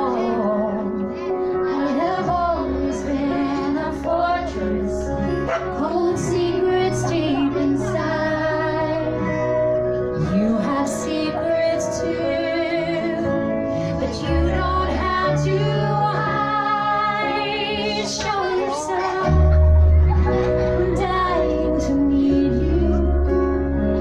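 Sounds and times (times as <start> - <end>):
woman singing: 0.0 - 9.3, 10.2 - 19.6, 20.6 - 24.0
instrumental backing: 0.0 - 24.0
steady bass line: 19.3 - 24.0.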